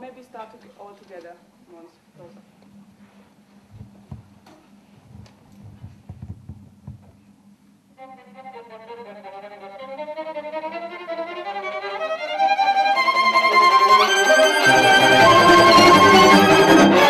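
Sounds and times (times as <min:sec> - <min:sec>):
soft low knocks and shuffles: 0:02.2 - 0:07.4
string quartet playing: 0:08.0 - 0:17.0.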